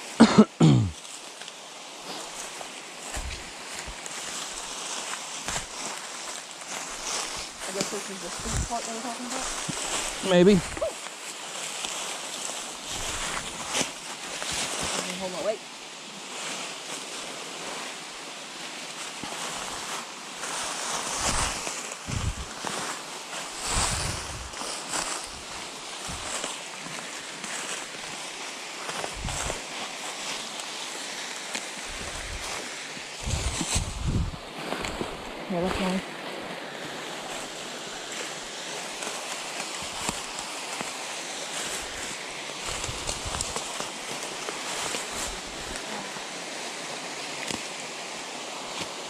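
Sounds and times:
footsteps in dry leaves: 0.0s - 49.0s
steady rushing outdoor noise: 0.0s - 49.0s
woodland stream flowing: 0.0s - 49.0s
wind rumble on microphone: 3.1s - 4.0s, 7.3s - 10.9s, 21.1s - 22.6s, 23.6s - 26.5s, 29.0s - 29.6s, 31.8s - 36.2s, 41.8s - 46.3s.

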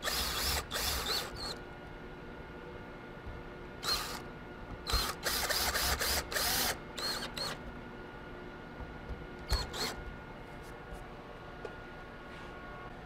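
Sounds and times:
cordless drill whining into wood: 0.0s - 1.6s, 3.8s - 4.2s, 4.8s - 7.6s, 9.5s - 10.0s.

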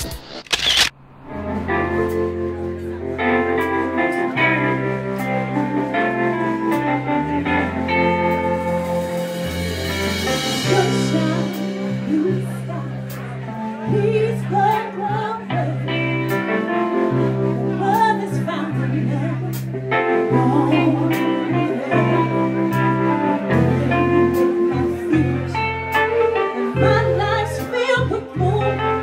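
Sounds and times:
live band playing: 1.1s - 29.0s
woman singing: 10.4s - 13.1s, 13.9s - 16.0s, 17.7s - 19.6s, 20.2s - 25.6s, 26.4s - 29.0s.

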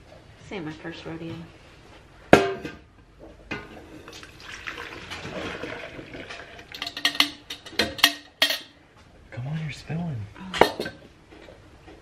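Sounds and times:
metal pails clinking together: 3.5s - 8.8s
milk pouring and splashing: 4.0s - 7.0s.

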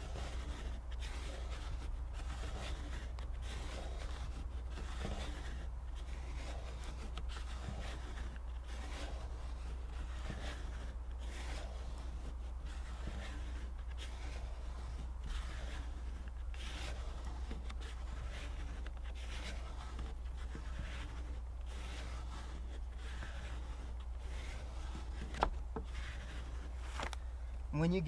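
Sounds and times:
squeegee rubbing over paper tape: 0.0s - 28.0s.

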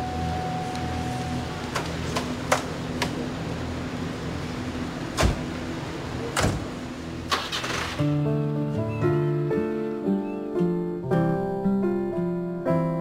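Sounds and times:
steady low hum: 0.0s - 7.4s
car doors slamming: 5.1s - 5.5s, 6.3s - 7.8s.

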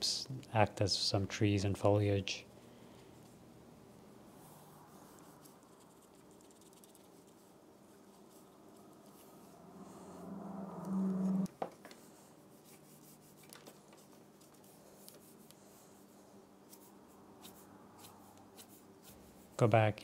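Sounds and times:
low steady hum: 0.0s - 20.0s
pen nib scratching on paper: 4.4s - 9.3s, 16.7s - 19.4s.

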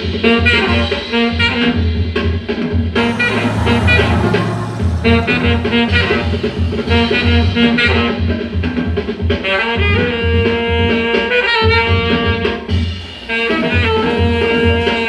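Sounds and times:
saxophone long held notes: 3.0s - 8.5s
pulsing low bass line: 3.0s - 8.8s.

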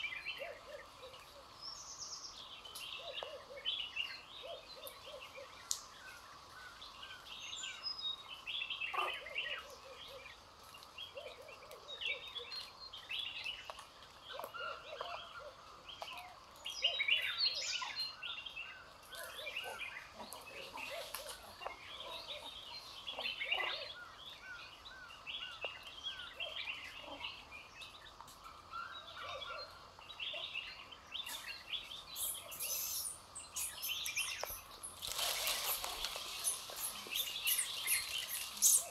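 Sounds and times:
birds chirping: 0.0s - 38.9s.

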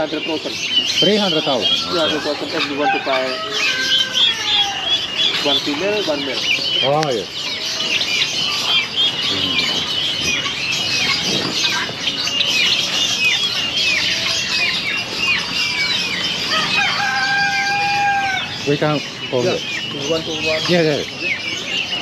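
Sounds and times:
chickens and small birds chirping: 0.0s - 22.0s
rooster crowing: 1.8s - 5.1s, 16.4s - 18.7s.

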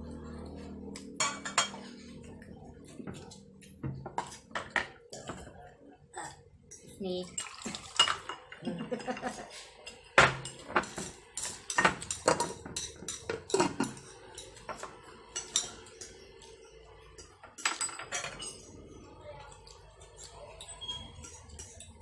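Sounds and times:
cutlery clinking on plates: 1.0s - 1.8s, 6.8s - 18.8s, 20.0s - 22.0s.

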